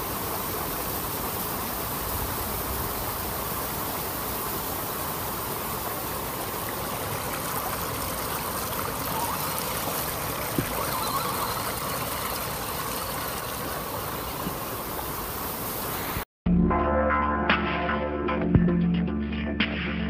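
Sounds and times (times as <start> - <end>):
stream rushing over rocks: 0.0 - 16.2
tyres splashing through water: 4.4 - 15.3.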